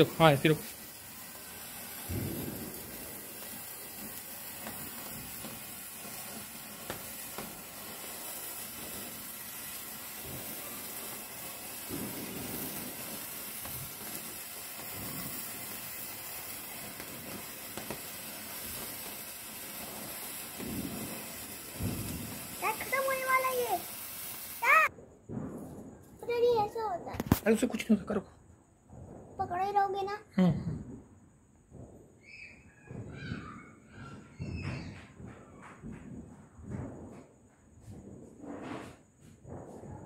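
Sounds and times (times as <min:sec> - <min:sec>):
faint crackles: 0:00.0 - 0:24.9
sparkler spitting hiss: 0:00.0 - 0:24.9, 0:25.6 - 0:28.0.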